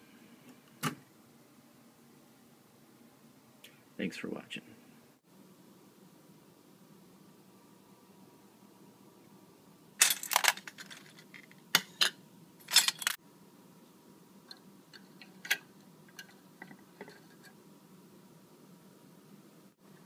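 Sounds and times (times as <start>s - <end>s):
metal parts clattering on steel bowls: 10.0s - 13.2s.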